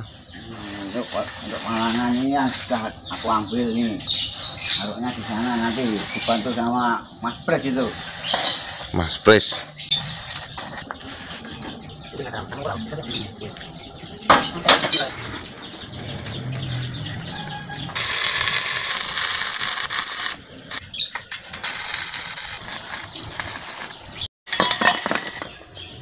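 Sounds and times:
arc welding crackling hiss: 0.4 - 11.4, 18.0 - 20.8, 21.6 - 24.0
metal clatter: 14.3 - 20.4, 21.1 - 25.7.

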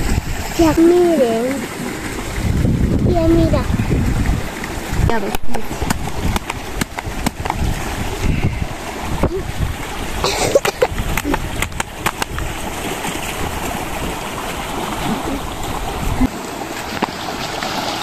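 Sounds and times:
steady rushing rumble: 2.1 - 10.3
handling clicks and knocks: 10.6 - 12.4.

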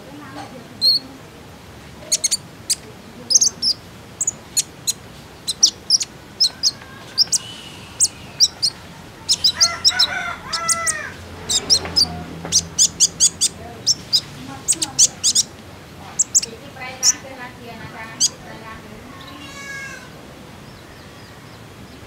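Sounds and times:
lower bird call: 2.1 - 15.5.

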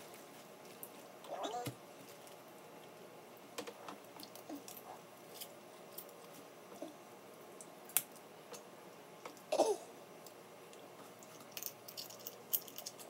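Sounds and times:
soft chewing: 10.2 - 13.0
crab shells cracking: 11.2 - 13.0.

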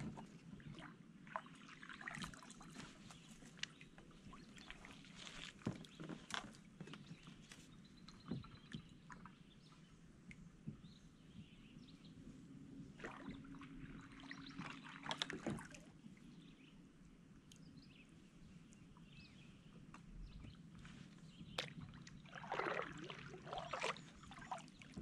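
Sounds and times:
water splashes and drips: 0.0 - 7.0, 13.0 - 16.0, 21.6 - 25.0
paddle strokes in water: 0.0 - 16.3, 18.3 - 25.0.

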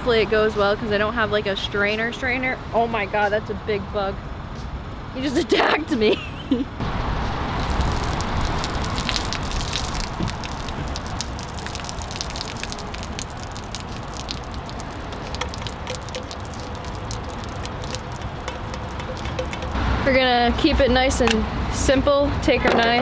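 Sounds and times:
water pouring and splashing on asphalt: 6.8 - 19.8.

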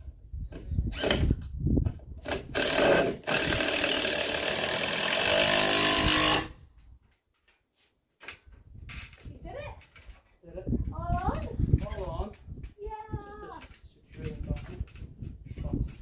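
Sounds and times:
cordless drill driving screws: 0.9 - 1.4, 2.2 - 6.5.

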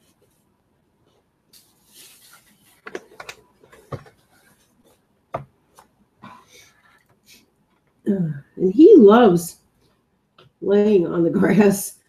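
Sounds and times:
paintbrush strokes on paper: 1.1 - 5.0.

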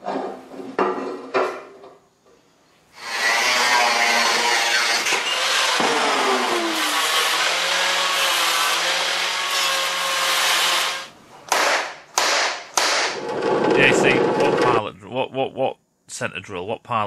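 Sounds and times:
angle grinder cutting steel: 3.0 - 11.1.

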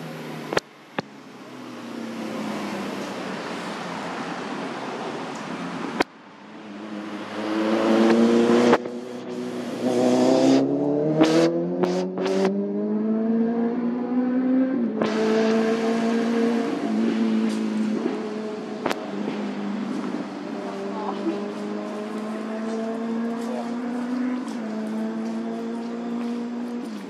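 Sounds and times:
vehicle engine accelerating: 0.0 - 27.0.

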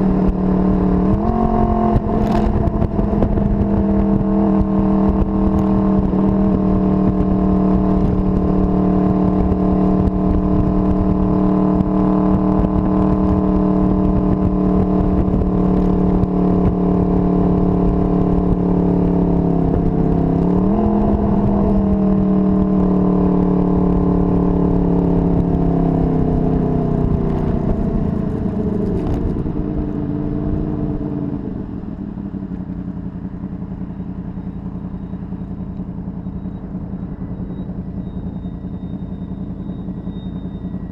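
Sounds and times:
wind buffeting on microphone: 0.0 - 22.8
motorcycle engine cruising: 0.0 - 40.9.

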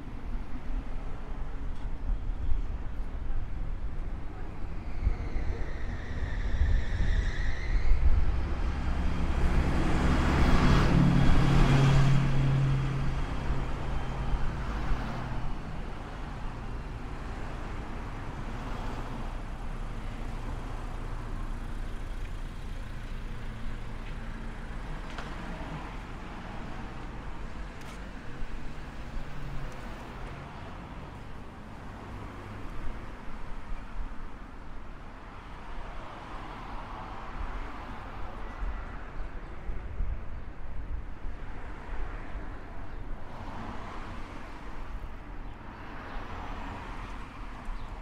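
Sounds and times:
steady traffic noise: 0.0 - 48.0
vehicle passing by: 8.4 - 15.5.

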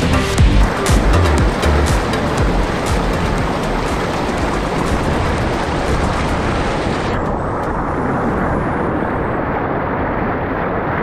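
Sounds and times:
stream rushing over rocks: 0.0 - 7.6.

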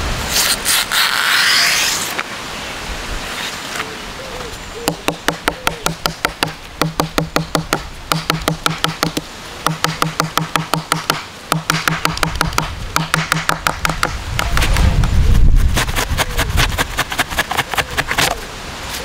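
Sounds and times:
wooden stick pounding leaf on board: 4.9 - 14.9, 15.5 - 18.4.

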